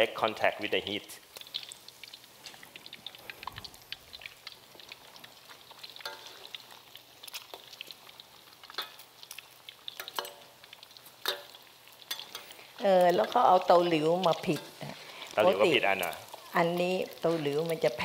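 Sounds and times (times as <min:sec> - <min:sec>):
omelet sizzling in hot oil: 0:00.0 - 0:18.0
metal ladle scraping a wok: 0:11.2 - 0:12.7.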